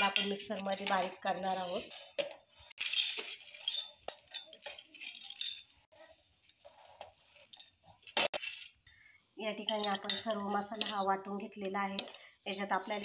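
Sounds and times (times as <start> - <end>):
peanuts rattling in steel jar: 2.8 - 5.9, 12.2 - 13.0.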